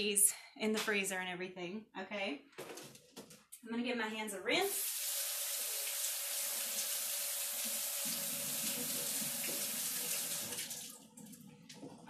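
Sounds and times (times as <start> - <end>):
faucet running into sink: 4.7 - 12.0.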